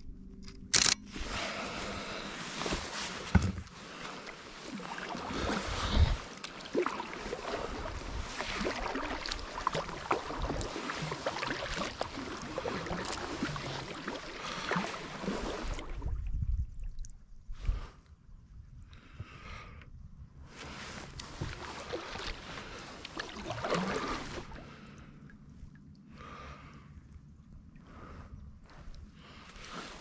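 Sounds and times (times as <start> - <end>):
wash of moving water: 1.1 - 17.9, 20.5 - 30.0
kayak paddle splashing in water: 1.2 - 16.1, 21.2 - 24.8.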